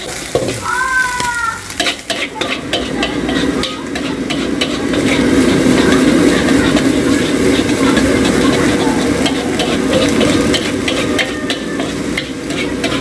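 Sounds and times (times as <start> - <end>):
sizzling: 0.0 - 13.0
metal spatula scraping a wok: 1.6 - 13.0.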